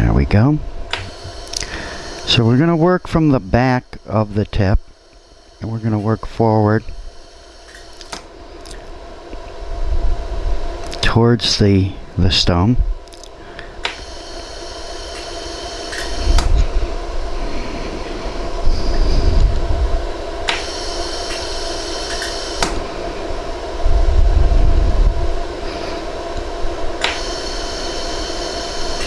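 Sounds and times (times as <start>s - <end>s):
laser welder humming: 0.0s - 29.0s
sharp welder pulse clicks: 7.6s - 8.8s, 13.1s - 14.3s, 15.0s - 16.5s, 20.4s - 22.8s, 27.0s - 27.8s
low rumble: 23.3s - 25.5s.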